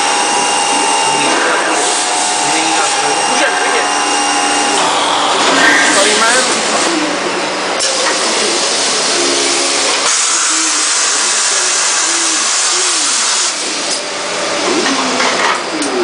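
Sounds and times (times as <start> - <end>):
motor whines: 0.0 - 7.3
machine loud steady hiss: 0.0 - 14.9.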